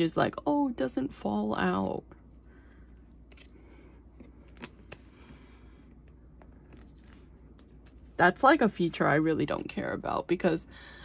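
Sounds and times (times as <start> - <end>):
plastic page rustling: 6.5 - 8.2.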